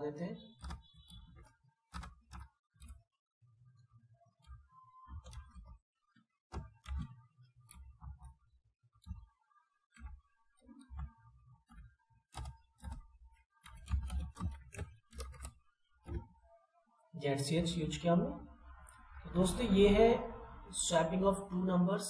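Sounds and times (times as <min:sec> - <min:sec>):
keyboard typing: 0:00.4 - 0:03.1, 0:04.2 - 0:05.8, 0:06.5 - 0:08.4, 0:09.9 - 0:16.3.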